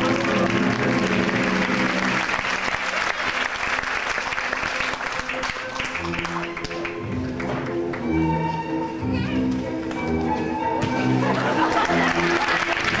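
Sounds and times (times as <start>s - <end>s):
audience applauding: 0.0s - 7.8s, 11.3s - 13.0s
music: 0.0s - 13.0s.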